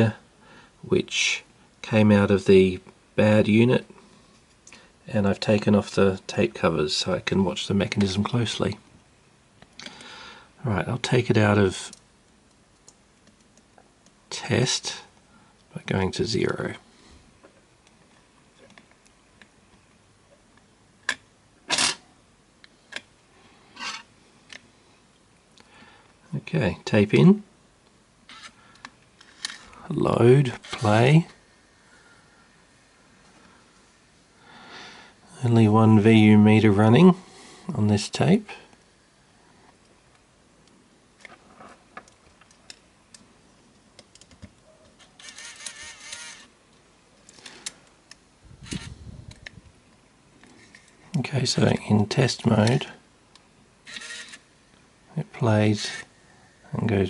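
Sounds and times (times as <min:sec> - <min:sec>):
tape mechanism whir: 0:45.1 - 0:46.5, 0:53.9 - 0:54.4.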